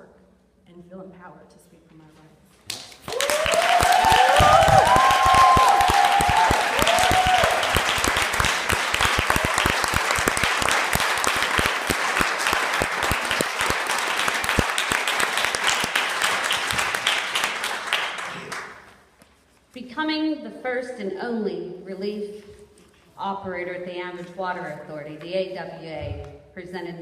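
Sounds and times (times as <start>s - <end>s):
audience applauding: 3.0s - 18.9s
voices cheering: 3.1s - 8.4s.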